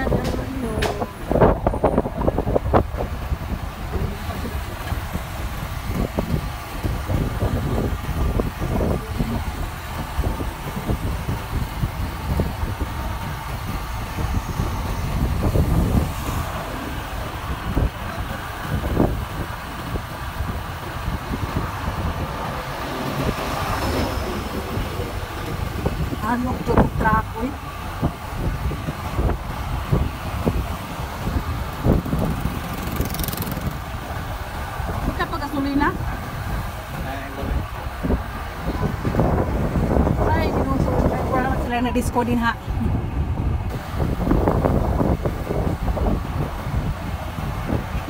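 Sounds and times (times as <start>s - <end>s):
wind buffeting microphone: 0.0s - 48.0s
motorcycle engine running: 29.5s - 36.2s.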